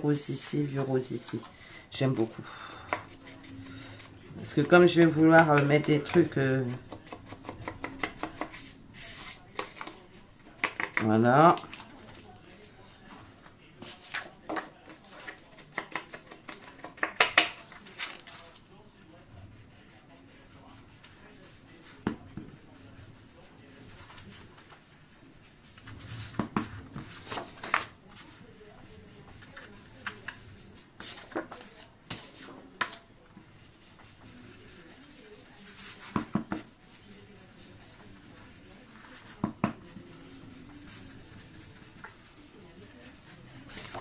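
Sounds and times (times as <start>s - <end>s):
paper handled on a table: 13.8s - 18.7s.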